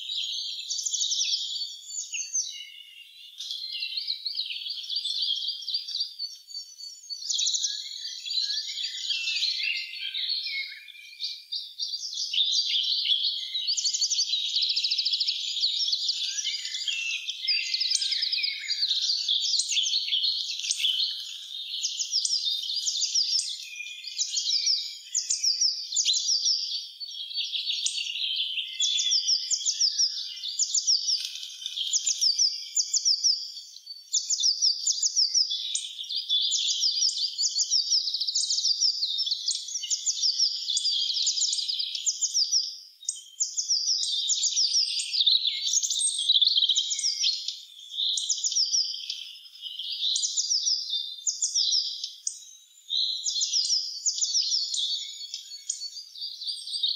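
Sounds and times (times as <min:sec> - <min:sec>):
songbirds singing: 0:00.0 - 0:56.9.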